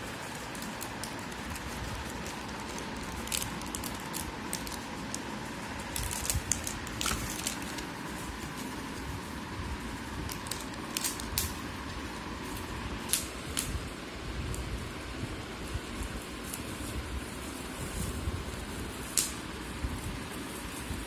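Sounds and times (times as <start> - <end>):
plastic packets crinkling: 0.0 - 9.4, 10.0 - 11.8.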